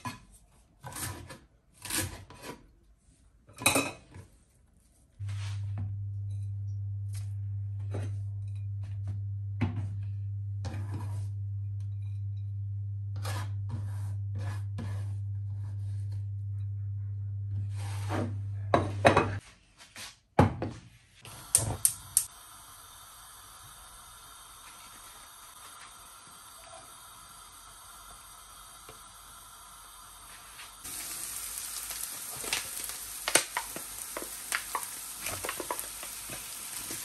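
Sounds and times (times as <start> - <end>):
steady low hum: 5.2 - 19.4
knife scraping on chopping board: 13.2 - 15.2.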